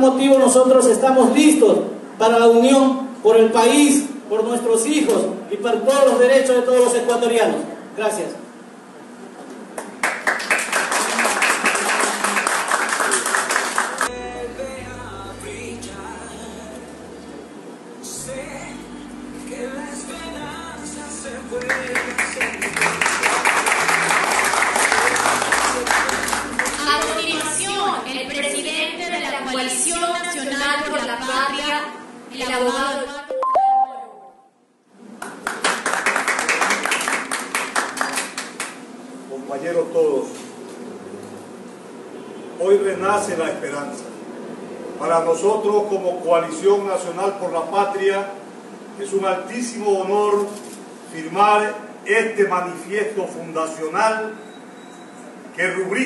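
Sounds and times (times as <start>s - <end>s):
people clapping: 9.7s - 14.1s, 21.6s - 27.7s, 35.1s - 38.8s
audience applauding: 9.8s - 14.1s, 21.6s - 27.6s, 35.2s - 38.8s
music: 14.1s - 27.7s
brief pitched sound: 33.3s - 34.5s.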